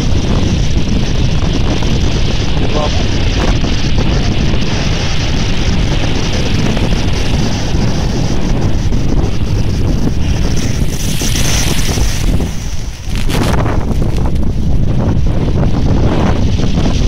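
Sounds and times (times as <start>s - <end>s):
wind buffeting microphone: 0.0s - 17.0s
surf breaking on shingle beach: 3.6s - 15.3s.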